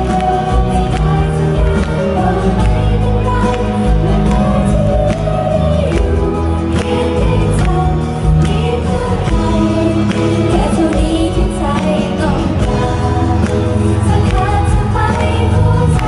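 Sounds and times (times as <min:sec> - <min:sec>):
pop music with drum beat: 0:00.0 - 0:16.0
women singing together: 0:00.0 - 0:16.0.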